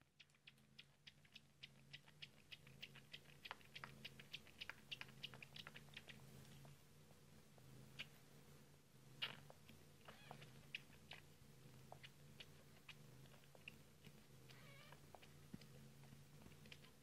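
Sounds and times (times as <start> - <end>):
kitten suckling from bottle: 0.0 - 6.6, 9.2 - 17.0.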